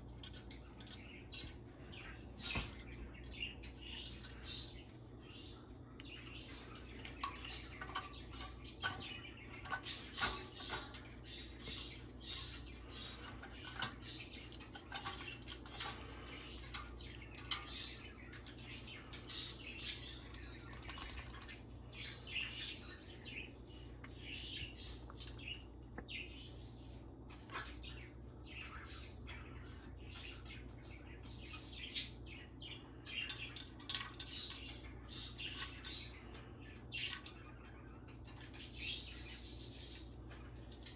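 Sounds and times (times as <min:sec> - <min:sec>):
beak tapping on metal cans: 0:06.0 - 0:21.5.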